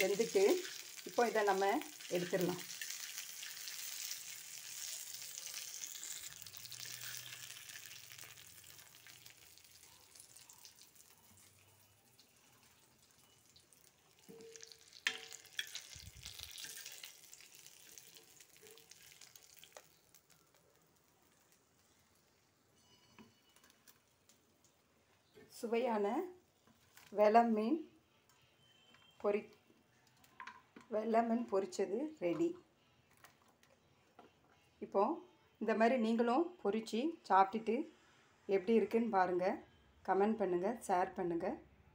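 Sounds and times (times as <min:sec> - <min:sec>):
fish sizzling in oil: 0:00.0 - 0:22.8.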